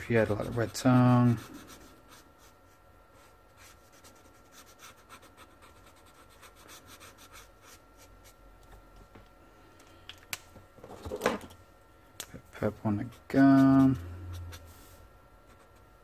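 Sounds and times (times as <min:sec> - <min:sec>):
marker scratching on paper: 0:00.1 - 0:02.6, 0:03.2 - 0:08.4.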